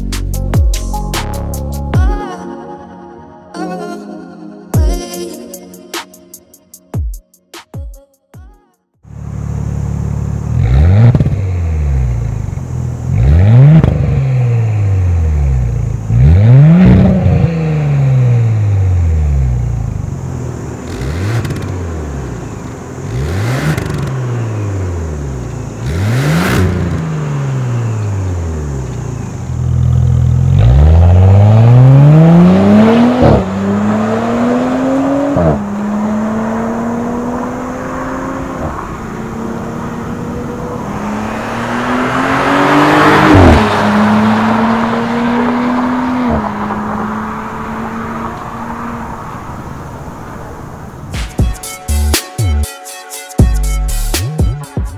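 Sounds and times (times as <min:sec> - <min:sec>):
car accelerating hard: 0:09.1 - 0:51.2
car engine revving: 0:09.1 - 0:51.4.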